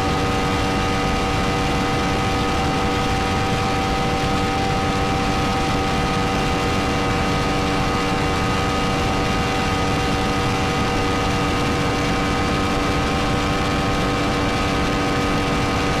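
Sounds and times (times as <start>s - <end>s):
motorcycle engine at full throttle: 0.0s - 16.0s.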